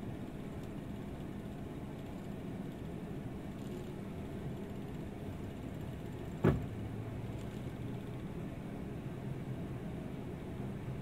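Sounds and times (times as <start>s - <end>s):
sharp thump: 6.4s - 6.7s.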